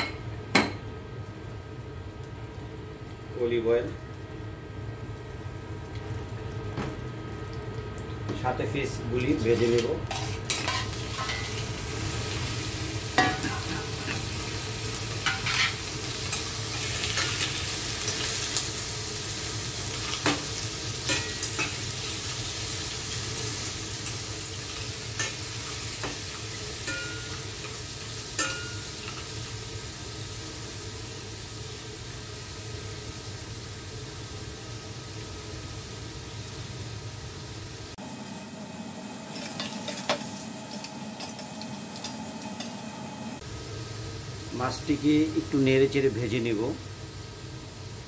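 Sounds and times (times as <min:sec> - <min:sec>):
seafood sizzling in oil: 0:00.0 - 0:48.0
metal tongs clinking on pan: 0:09.8 - 0:11.6, 0:13.2 - 0:14.3, 0:21.1 - 0:21.8, 0:26.8 - 0:27.8, 0:28.4 - 0:29.3.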